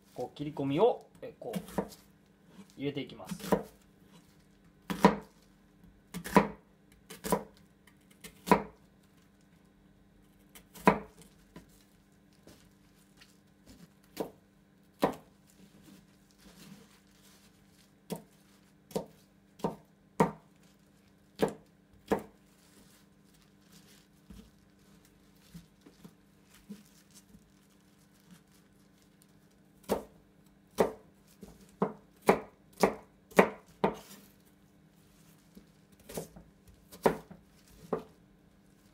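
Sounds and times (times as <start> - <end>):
knife cutting onion on cutting board: 1.4 - 5.4, 6.1 - 8.8, 10.3 - 11.7, 13.6 - 15.9, 18.0 - 20.6, 21.3 - 22.8, 29.8 - 34.3, 35.5 - 38.2.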